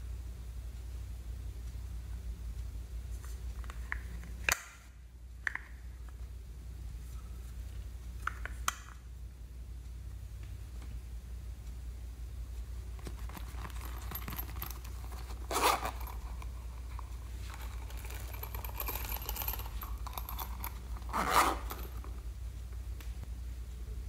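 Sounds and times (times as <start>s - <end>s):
low steady hum: 0.0s - 24.0s
beads rustling and rattling: 13.0s - 22.2s.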